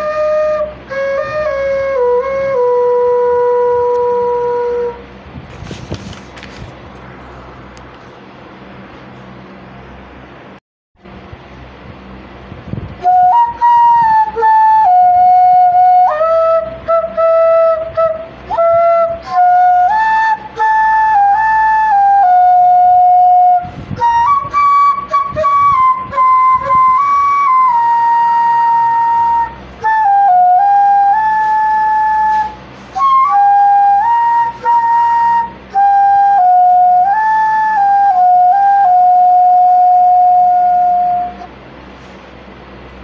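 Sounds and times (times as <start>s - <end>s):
solo flute melody: 0.0s - 5.1s, 13.0s - 41.6s.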